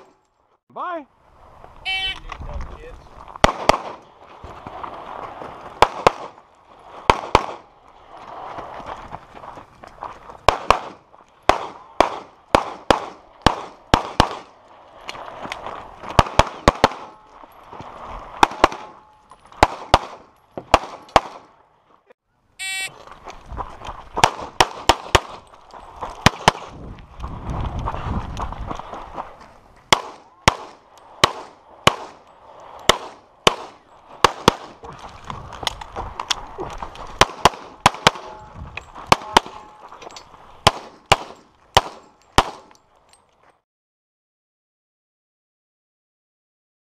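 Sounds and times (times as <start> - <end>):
shot timer beep: 1.9 - 2.2, 22.6 - 22.9
pistol shots: 3.4 - 4.0, 10.5 - 14.5, 16.2 - 17.2, 18.4 - 19.0, 19.6 - 21.5, 29.9 - 32.2, 32.9 - 34.8, 37.2 - 38.4, 39.1 - 39.8, 40.6 - 42.7.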